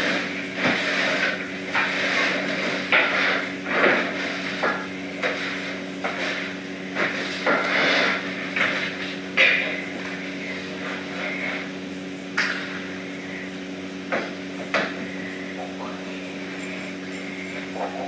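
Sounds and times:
broom sweeping a hard floor: 0.0s - 11.8s
steady low hum: 0.0s - 18.0s.

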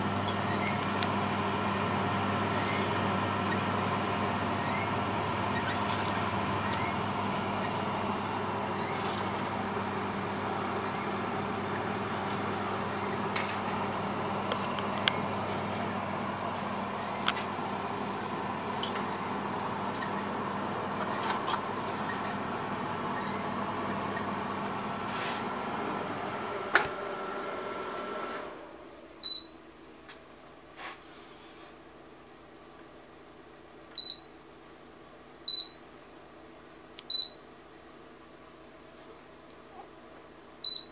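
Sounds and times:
microwave oven humming: 0.0s - 30.7s, 31.4s - 40.9s.

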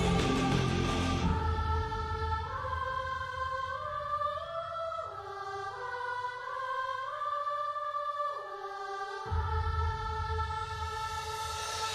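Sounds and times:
low accompaniment: 0.0s - 1.7s
choir singing long chords: 0.0s - 11.9s.

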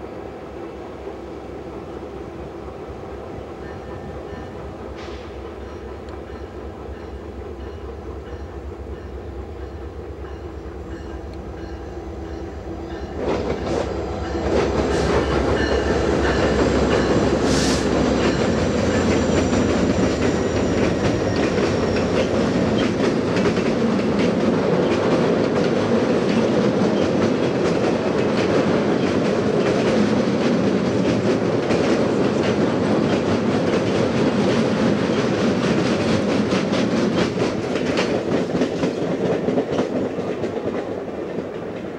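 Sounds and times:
rumble of passing train cars: 0.0s - 41.9s
wheels clacking over rail joints: 18.0s - 41.9s.

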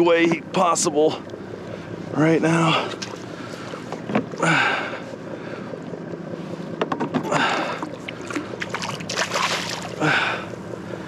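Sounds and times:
knocks against boat: 3.9s - 4.4s, 6.8s - 7.9s
fish splashing at surface: 8.3s - 10.0s.

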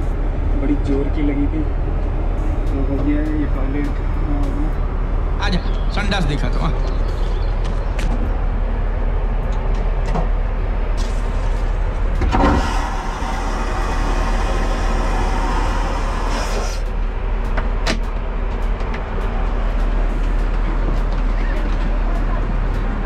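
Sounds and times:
aircraft cabin drone: 0.0s - 23.0s
vacuum toilet flushing whoosh: 12.2s - 16.9s.

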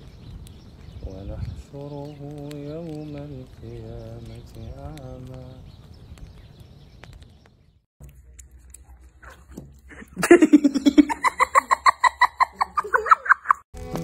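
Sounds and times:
person laughing hard: 9.9s - 13.6s.

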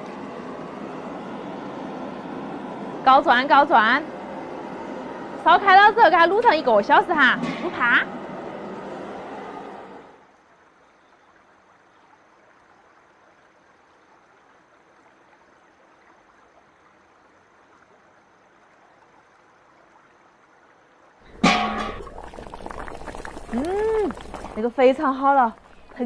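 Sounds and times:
faint steady hiss: 0.0s - 26.0s
metal wok lid clanging: 21.3s - 22.1s.

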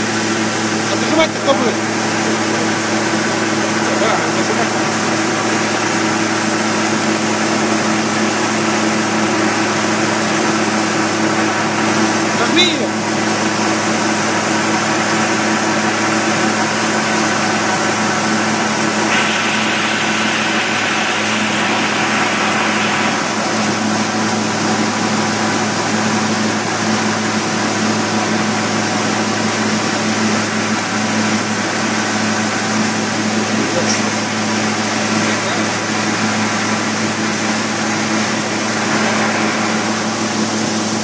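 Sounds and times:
machine tool humming and hissing: 0.0s - 41.0s
strong hiss: 14.9s - 25.3s, 33.2s - 41.0s.

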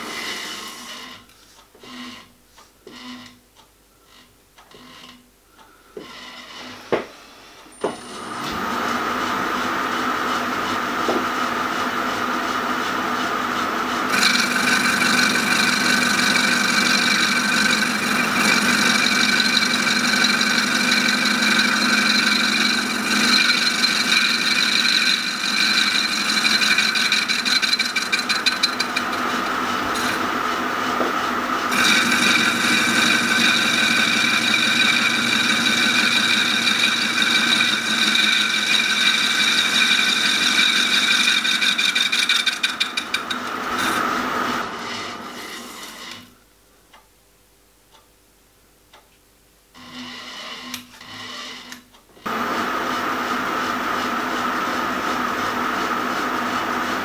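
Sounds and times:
metal lathe whining: 6.0s - 46.3s, 49.8s - 57.0s
boring tool scraping metal: 14.1s - 29.3s, 31.7s - 44.0s, 44.6s - 46.3s, 49.8s - 51.9s.

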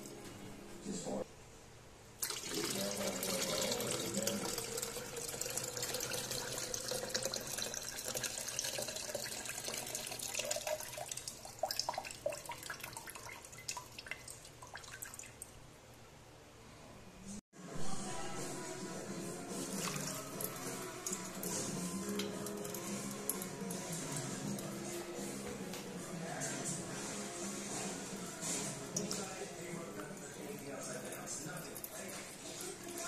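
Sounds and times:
water pouring into container: 2.2s - 15.4s, 19.6s - 24.3s
water dripping and trickling: 2.2s - 15.6s, 28.9s - 33.0s.

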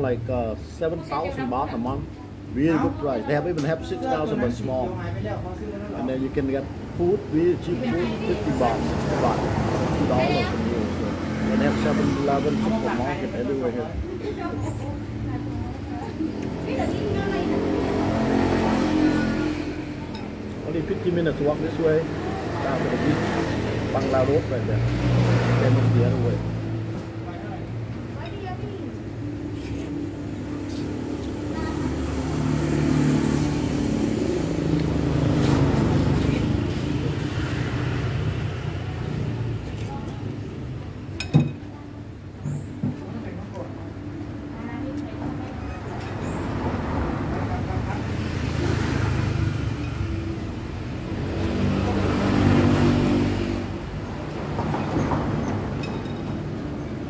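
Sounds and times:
vehicle engine passing by: 7.0s - 28.2s, 29.0s - 40.6s, 44.8s - 57.0s.

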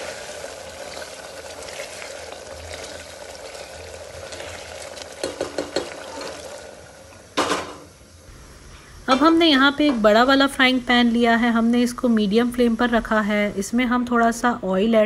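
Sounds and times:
wooden spatula stirring: 0.0s - 6.6s
meat bubbling and sizzling: 0.0s - 13.8s.

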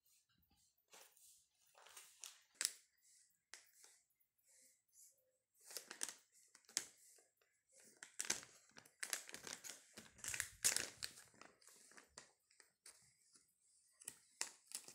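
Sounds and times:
baby crinkling plastic wrapper: 5.6s - 6.9s, 7.9s - 13.0s, 14.0s - 14.9s.

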